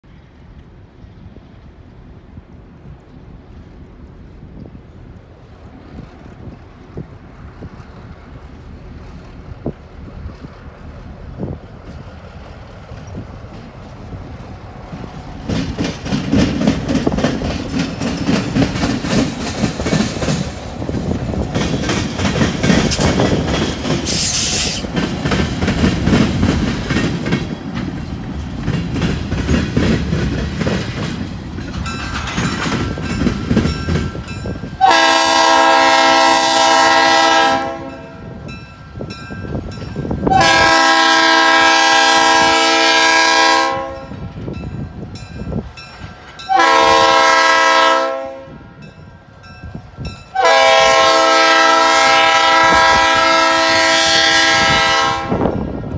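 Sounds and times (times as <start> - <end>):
locomotive engine rumbling: 0.0 - 55.9
wheels clicking over rail joints: 0.2 - 34.9
locomotive air horn blast: 34.8 - 38.4, 40.3 - 44.3, 46.5 - 48.7, 50.3 - 55.5.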